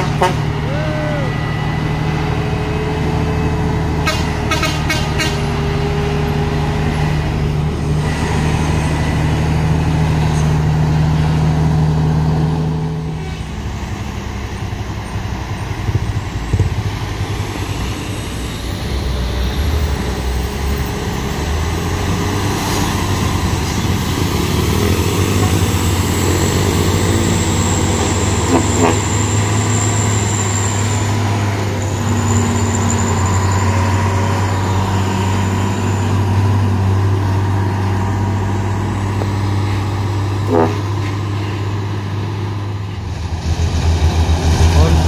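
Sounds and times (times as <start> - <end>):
diesel truck engine labouring: 0.0 - 45.0.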